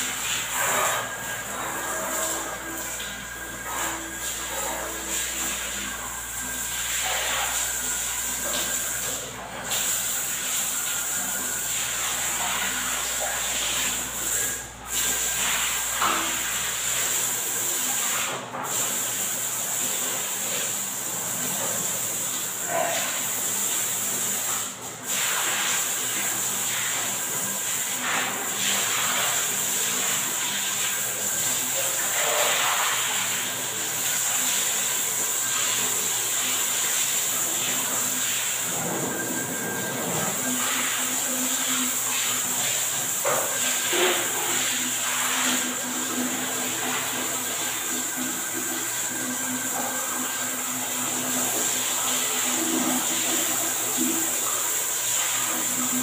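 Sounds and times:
bidet sprayer spraying water: 21.6 - 56.0.

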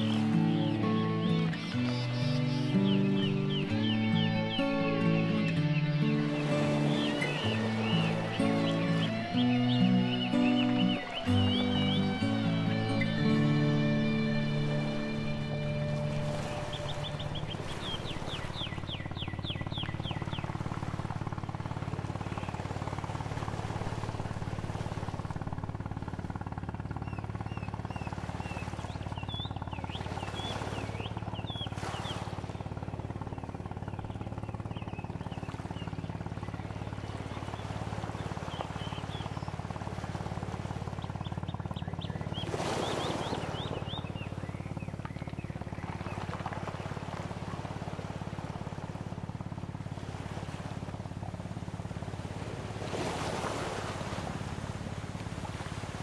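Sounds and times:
small birds chirping: 0.0 - 22.8, 26.8 - 39.7, 40.9 - 47.0
low background rumble: 7.3 - 52.8.

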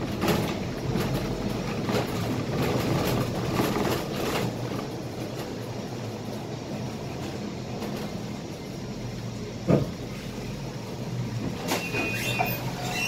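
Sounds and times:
bus engine and road rumble: 0.0 - 13.0
squeaks and rattles: 11.6 - 13.0.

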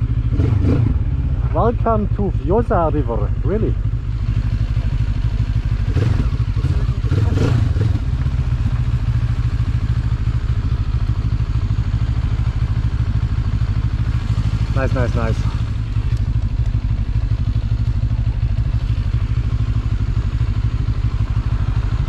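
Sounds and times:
motorcycle engine at low revs: 0.0 - 22.0.

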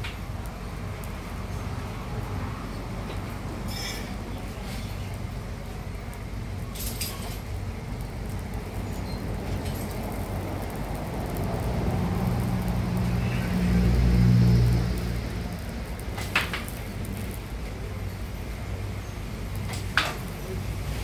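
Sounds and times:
welding arc hissing: 0.0 - 21.0
low rumble: 7.7 - 17.4.

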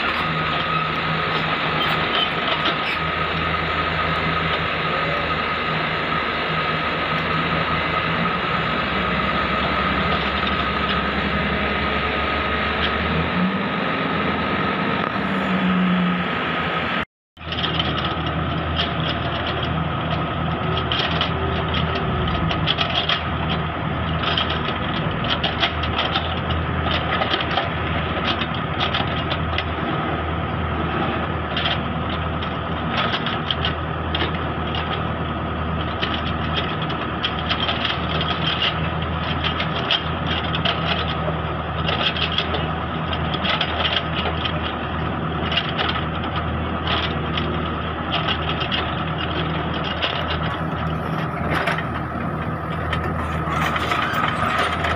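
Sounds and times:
high whine: 0.0 - 17.5, 50.4 - 54.9
diesel engine running: 0.0 - 54.9.

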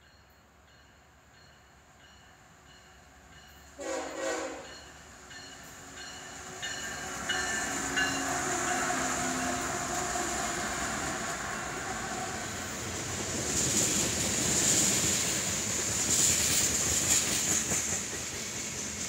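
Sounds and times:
locomotive engine and rail noise: 0.0 - 19.0
train horn blast: 3.8 - 4.8.

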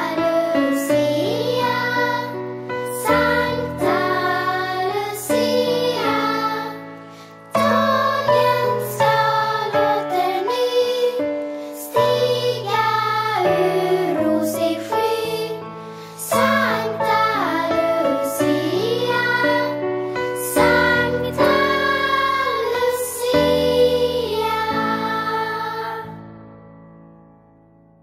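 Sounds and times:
children singing: 0.0 - 26.3.

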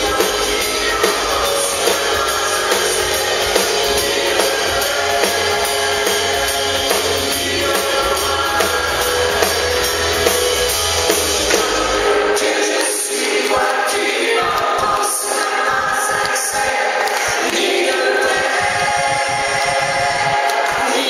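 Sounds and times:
bass guitar: 0.0 - 12.4
drums: 0.0 - 21.0
man and woman singing: 0.0 - 21.0.

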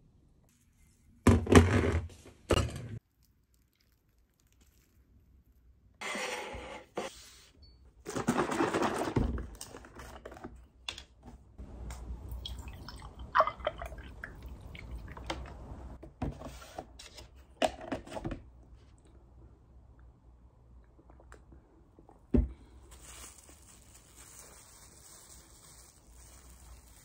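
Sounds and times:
milk pouring into a mug: 12.3 - 15.5
plastic wrap crinkling: 22.8 - 27.0.

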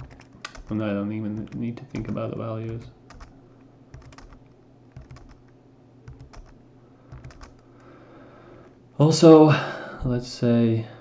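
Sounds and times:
keyboard keys pressed: 0.0 - 3.3, 3.9 - 7.6
low steady hum: 0.0 - 11.0.

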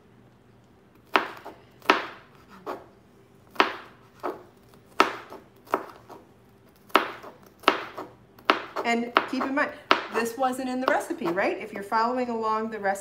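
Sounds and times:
knife chopping on cutting board: 1.0 - 2.9, 3.5 - 6.2, 6.8 - 11.5.

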